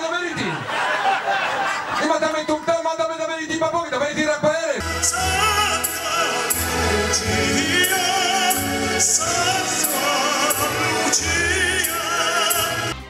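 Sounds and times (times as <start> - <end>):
man singing operatically: 4.8 - 13.0
orchestra with strings: 4.8 - 13.0.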